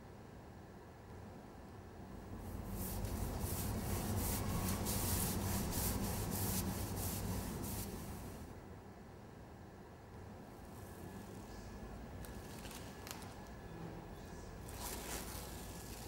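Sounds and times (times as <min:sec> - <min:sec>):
paintbrush scrubbing on wall: 0:02.4 - 0:08.5.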